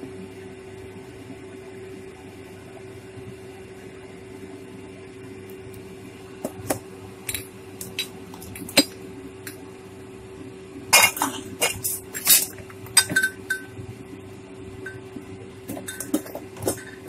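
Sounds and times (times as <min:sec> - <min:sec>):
low hum: 0:05.0 - 0:17.0.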